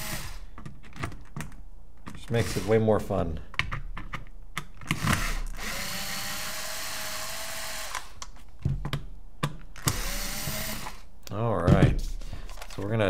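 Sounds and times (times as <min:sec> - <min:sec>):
electric screwdriver running: 0:00.0 - 0:00.4, 0:02.4 - 0:02.7, 0:05.0 - 0:08.2, 0:09.8 - 0:11.1.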